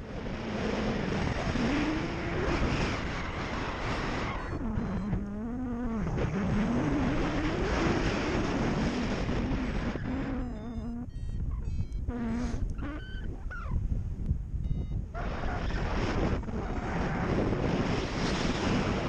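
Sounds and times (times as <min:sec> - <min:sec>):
wind rushing over microphone: 0:00.0 - 0:19.0
low wavering tone: 0:04.2 - 0:07.2, 0:10.0 - 0:13.8.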